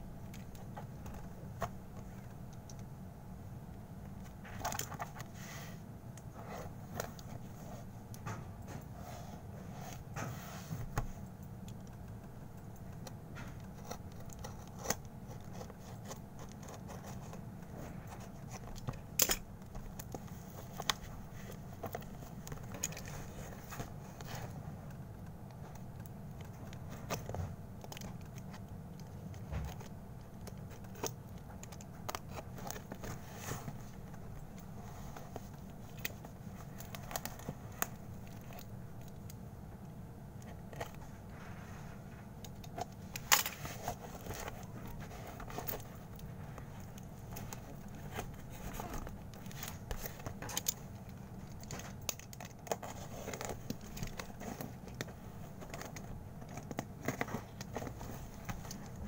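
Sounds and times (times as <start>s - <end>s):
steady low hum: 0.0s - 59.0s
packaging clicks and crackles: 11.2s - 41.0s, 42.4s - 59.0s.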